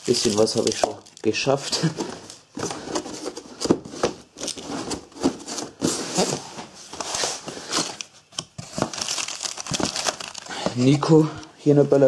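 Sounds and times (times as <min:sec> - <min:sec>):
cardboard boxes rustling and scraping: 0:01.6 - 0:11.2.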